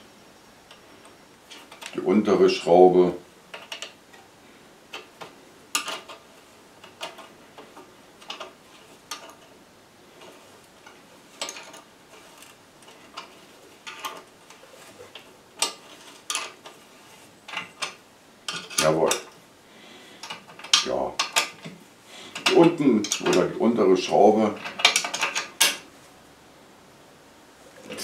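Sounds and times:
spanner clicking on metal bolt: 22.4 - 23.6, 24.6 - 25.8.

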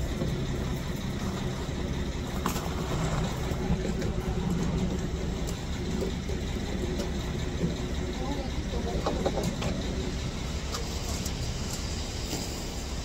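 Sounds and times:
diesel truck engine running: 0.0 - 13.0.

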